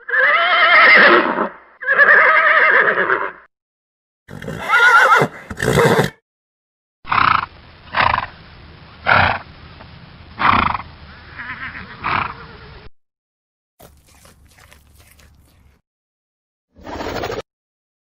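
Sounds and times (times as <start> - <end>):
horse whinnying: 0.0 - 3.4, 4.3 - 6.2.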